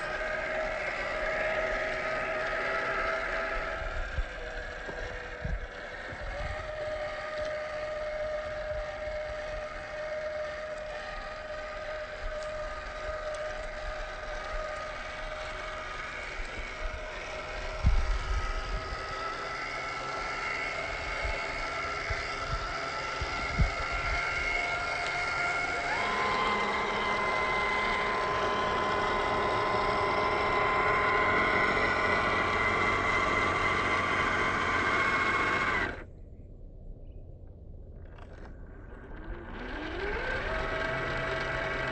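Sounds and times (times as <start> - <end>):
electric motor whining: 0.0 - 36.1, 38.0 - 41.9.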